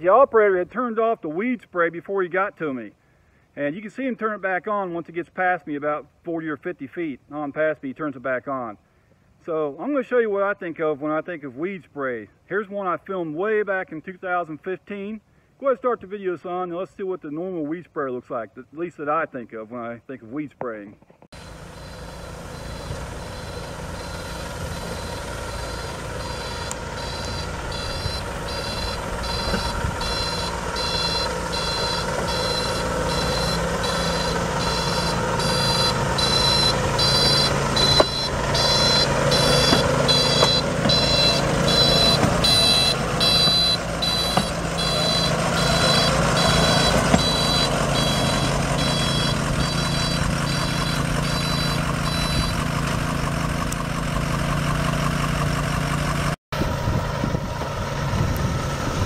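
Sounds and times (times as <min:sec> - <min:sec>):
truck engine: 0:21.3 - 0:59.0
beeping alarm: 0:21.4 - 0:52.8.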